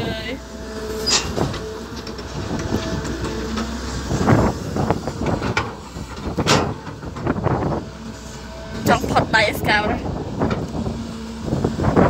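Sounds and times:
diesel excavator engine under load: 0:00.0 - 0:12.0
dirt clods rattling into truck bed: 0:05.2 - 0:07.3.

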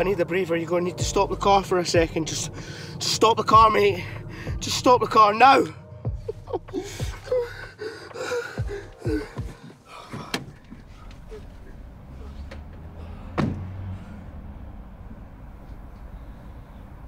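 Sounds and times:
low car rumble: 0:00.0 - 0:17.0
car door slamming shut: 0:10.1 - 0:10.8, 0:12.4 - 0:13.9
car door clicking open: 0:10.1 - 0:11.6.

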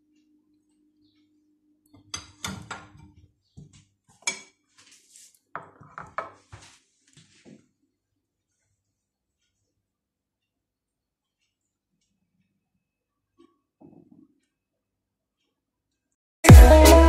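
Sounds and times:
crockery knocks: 0:02.1 - 0:03.2.

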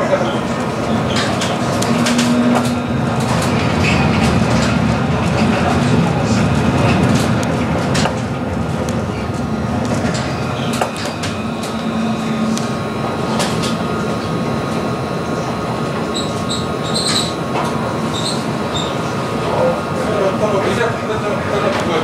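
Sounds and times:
tram rolling along track: 0:00.0 - 0:22.0
high wheel squeals: 0:16.0 - 0:19.2.

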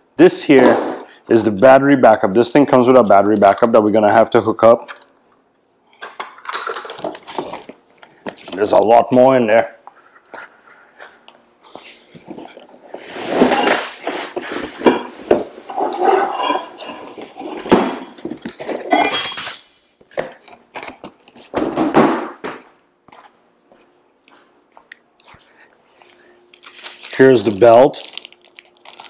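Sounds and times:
metal parts clinking on concrete: 0:18.2 - 0:20.1.

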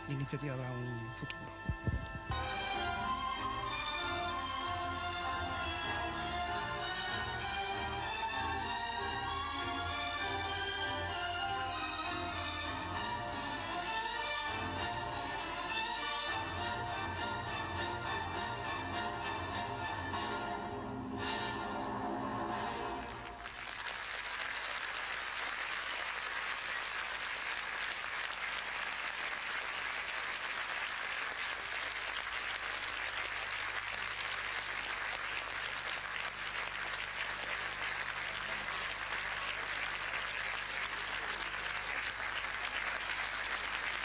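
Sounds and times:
ballet music: 0:00.0 - 0:23.6
audience applauding: 0:22.7 - 0:44.0.

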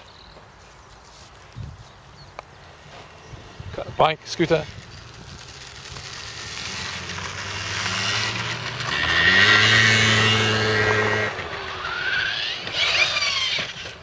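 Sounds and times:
motor scooter engine passing: 0:03.1 - 0:14.0
electric motor high whine: 0:04.7 - 0:14.0.

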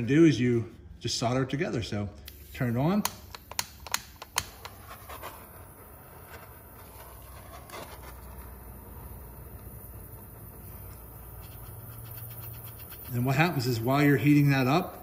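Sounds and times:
faint hiss of jet flame: 0:02.2 - 0:15.0
torch igniter clicks: 0:03.0 - 0:04.8.

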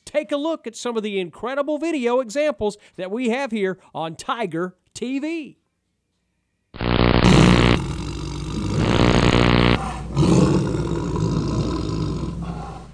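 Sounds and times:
tiger roaring: 0:10.1 - 0:12.8.

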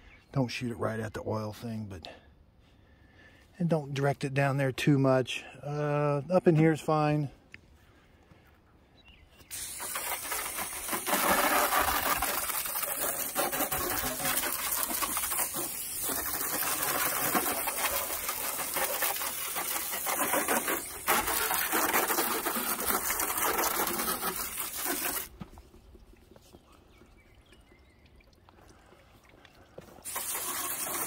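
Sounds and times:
hose spraying water: 0:09.5 - 0:25.4, 0:29.8 - 0:31.0.

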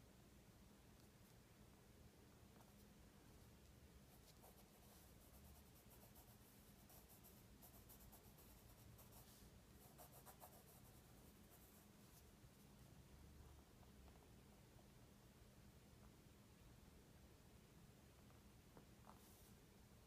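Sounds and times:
low steady hum: 0:00.0 - 0:20.0
pencil scratching on paper: 0:04.1 - 0:12.3.

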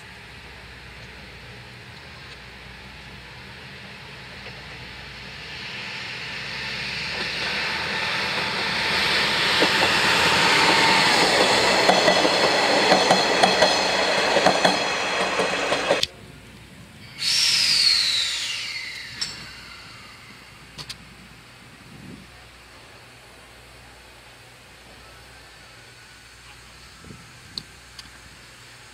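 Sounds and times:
diesel railcar engine: 0:00.0 - 0:28.9
hissing with falling whistle: 0:05.4 - 0:16.0, 0:17.0 - 0:20.6
wheels clacking over rail joints: 0:07.1 - 0:16.1.

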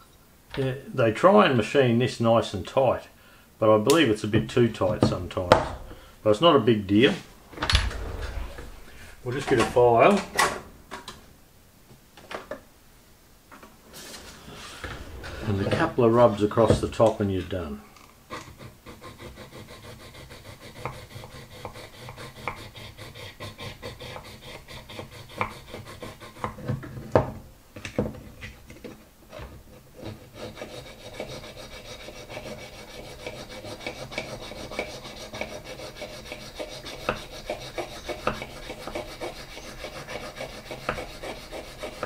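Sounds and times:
metal file rasping on metal: 0:18.3 - 0:26.6, 0:29.4 - 0:42.0.

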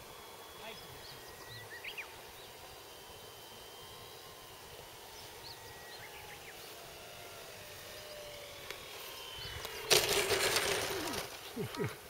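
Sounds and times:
model plane motor whining: 0:00.0 - 0:12.0
bird chirps: 0:00.6 - 0:02.6, 0:05.1 - 0:06.8, 0:09.1 - 0:09.9.

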